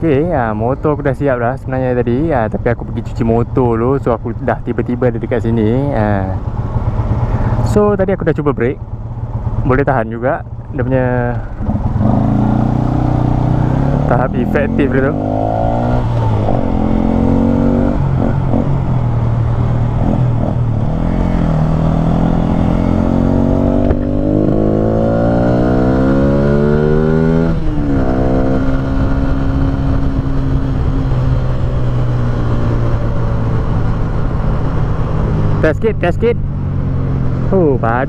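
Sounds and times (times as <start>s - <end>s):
motorcycle engine accelerating: 4.6s - 38.0s.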